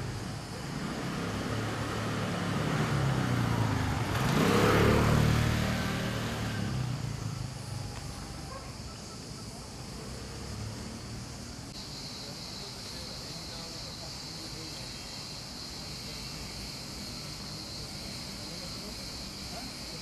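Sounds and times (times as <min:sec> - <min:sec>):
motor scooter passing by: 0:00.0 - 0:11.7.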